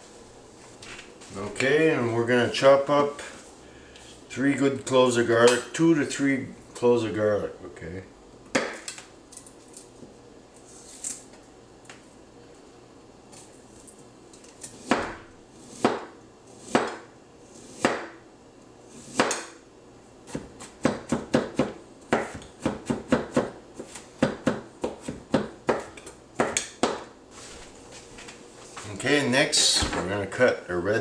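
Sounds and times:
knife chopping on cutting board: 0:14.8 - 0:17.1, 0:17.7 - 0:18.2, 0:19.0 - 0:19.6, 0:20.3 - 0:27.1.

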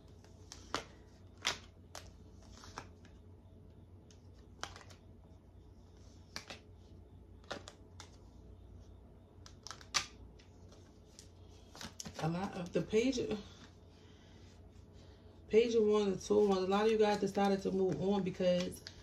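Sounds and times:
cards clicking on glass table: 0:09.4 - 0:10.2.

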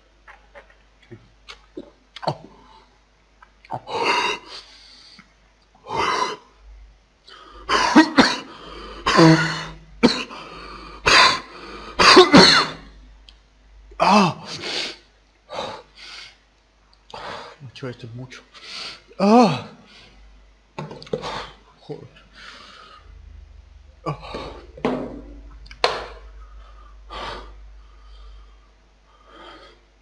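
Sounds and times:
man coughing harshly: 0:07.7 - 0:10.4, 0:11.0 - 0:12.9.

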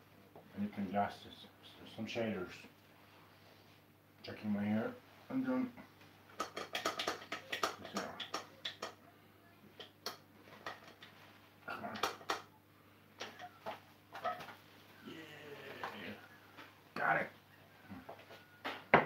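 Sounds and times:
frying pan clicking and knocking on stove: 0:06.4 - 0:09.0.

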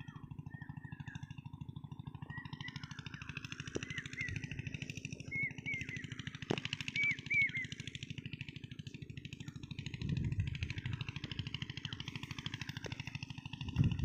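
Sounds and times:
engine thudding steadily: 0:00.0 - 0:14.0
bird chirps: 0:02.2 - 0:06.2, 0:06.8 - 0:07.8.

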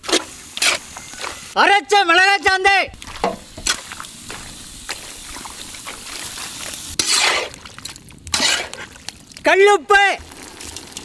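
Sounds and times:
wet squishing rustle: 0:02.9 - 0:09.5
wet paste scraping and plopping: 0:03.0 - 0:09.4.

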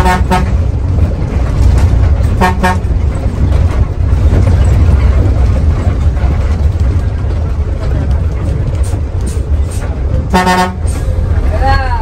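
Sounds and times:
bus engine rumble: 0:00.0 - 0:12.0
vehicle horn beeps: 0:10.3 - 0:10.8.

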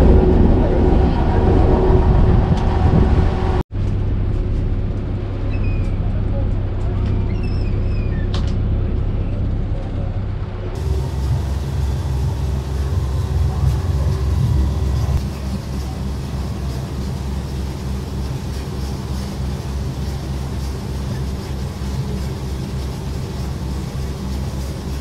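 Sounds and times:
boat engine drone: 0:00.0 - 0:25.0
wind and water noise: 0:00.0 - 0:25.0.

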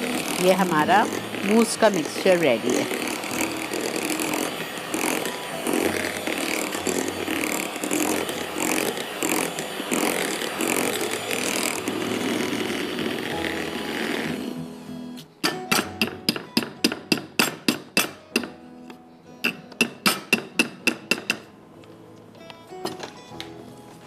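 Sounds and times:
electric hand mixer whipping: 0:00.0 - 0:16.7.

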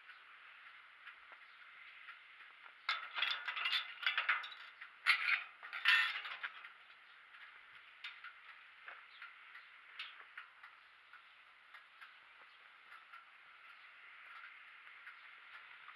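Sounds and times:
metal gate rattling and clanking: 0:02.8 - 0:09.4.

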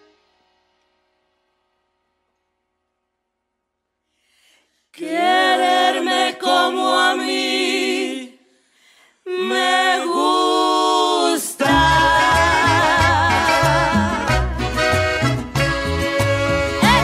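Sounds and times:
voices singing in harmony: 0:05.0 - 0:08.6, 0:09.2 - 0:17.0
band playing with bass: 0:11.7 - 0:17.0.

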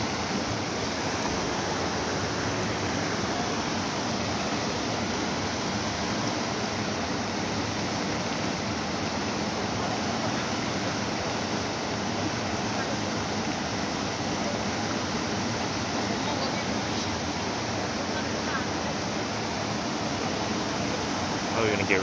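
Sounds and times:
floodwater rushing: 0:00.0 - 0:22.0.

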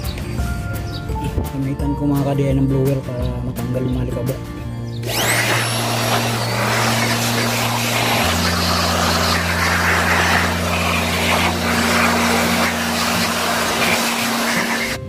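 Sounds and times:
electric blower rushing air: 0:05.0 - 0:15.0.

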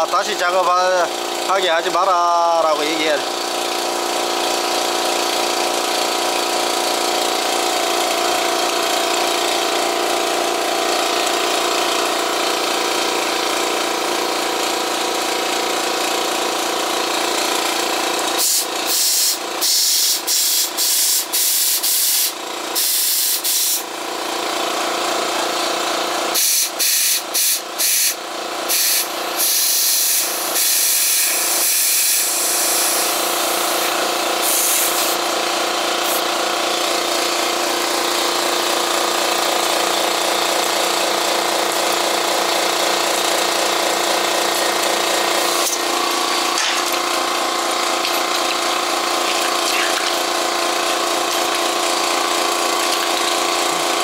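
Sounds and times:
air compressor humming: 0:00.0 - 0:54.0
air hissing: 0:18.4 - 0:23.8, 0:26.4 - 0:35.2.

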